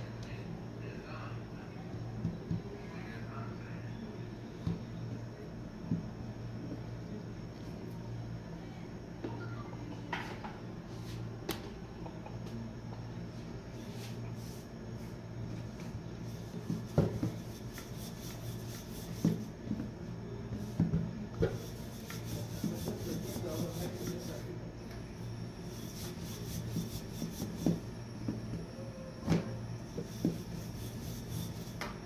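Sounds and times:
rolling pin rolling dough: 15.8s - 19.9s, 20.5s - 24.5s, 25.6s - 28.6s, 29.9s - 32.0s.

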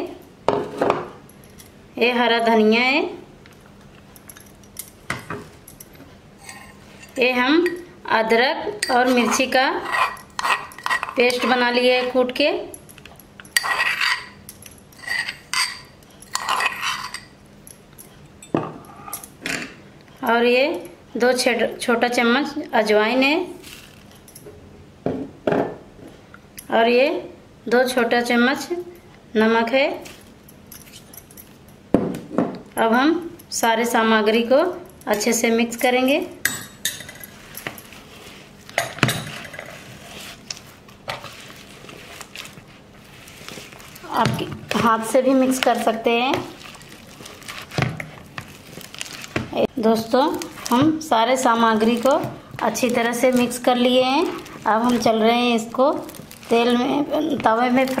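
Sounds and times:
spoon scraping metal mortar: 8.8s - 12.2s, 13.6s - 14.4s, 15.0s - 17.3s.

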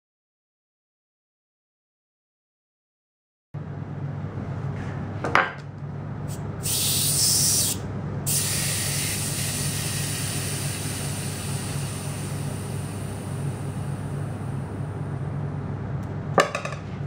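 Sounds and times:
air hissing out of tyre valve: 6.3s - 14.7s.

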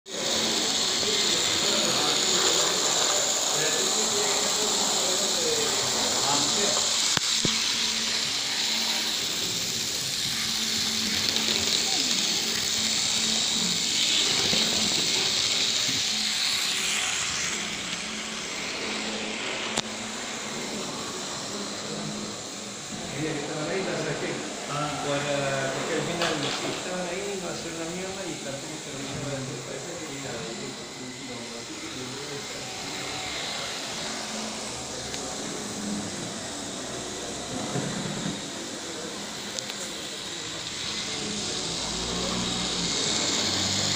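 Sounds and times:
model train motors whirring on rails: 0.1s - 43.9s.

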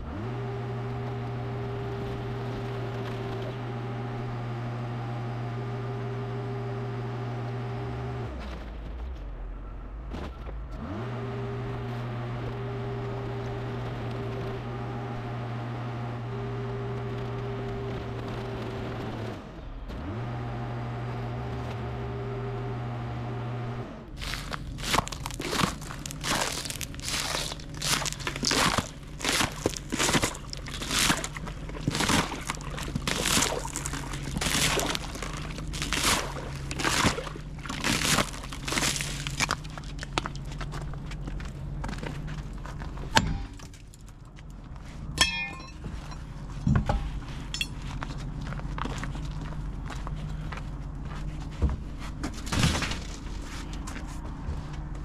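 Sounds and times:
forklift engine revving: 0.0s - 8.8s, 10.6s - 43.6s
loud crunching and crackling: 24.1s - 54.9s.

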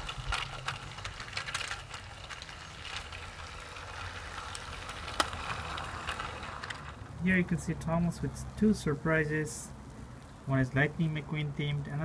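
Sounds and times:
small clicks of toy train: 0.0s - 7.1s
toy train motor whir: 0.0s - 7.1s.

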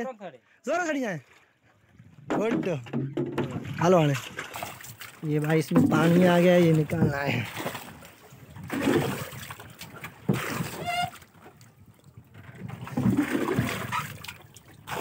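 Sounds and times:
container knocking against hull: 2.2s - 4.2s, 5.6s - 7.3s, 12.7s - 14.1s
water scooped and splashing: 3.4s - 15.0s.

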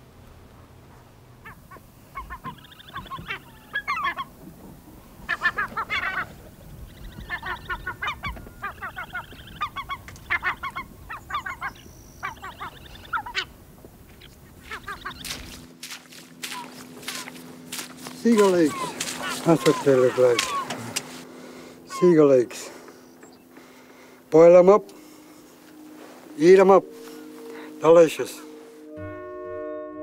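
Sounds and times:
gulls calling: 1.4s - 29.1s.

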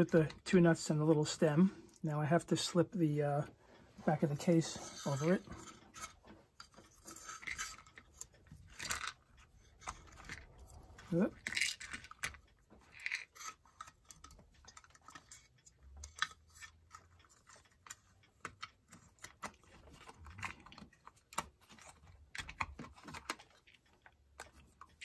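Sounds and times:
small metal clicks and taps: 11.4s - 25.0s.

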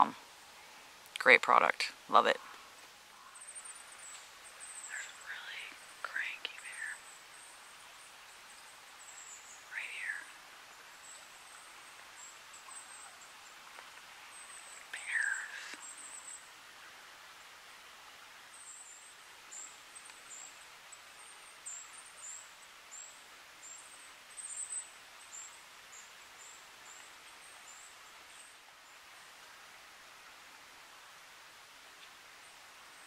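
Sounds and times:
wild birds calling: 0.0s - 17.4s
background hiss: 0.0s - 33.0s.

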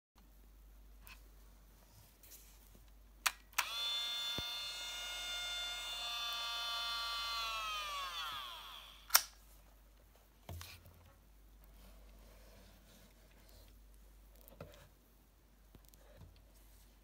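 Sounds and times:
camera electronic whine: 3.6s - 9.3s
sharp loud click: 9.0s - 9.4s.

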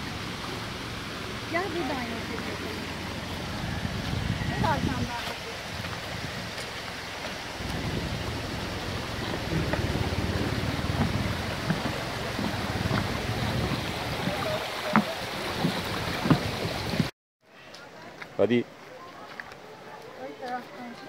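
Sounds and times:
stream running over stones: 0.0s - 17.1s
footsteps on wooden bridge: 3.2s - 17.1s.

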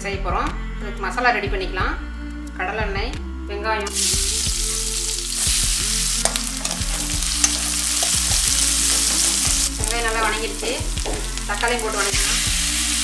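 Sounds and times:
onions sizzling in hot oil: 3.9s - 13.0s.

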